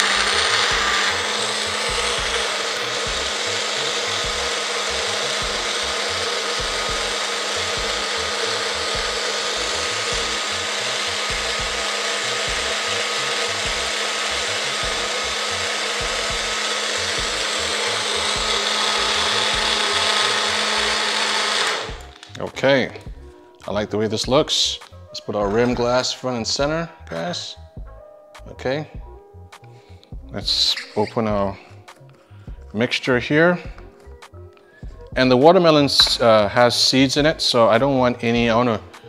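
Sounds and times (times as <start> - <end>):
blender whirring: 0.0 - 22.4, 35.9 - 36.5
ice blending: 0.0 - 22.4.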